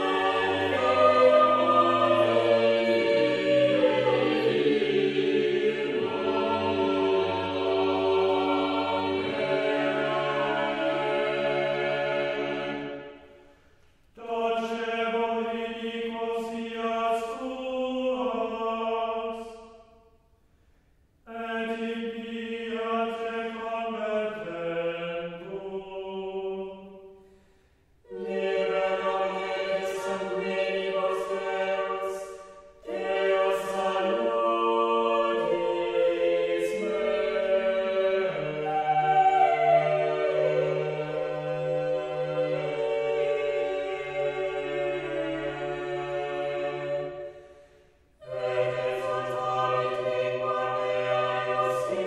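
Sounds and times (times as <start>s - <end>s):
chant-like vocal chords: 0.0s - 13.6s, 28.0s - 52.0s.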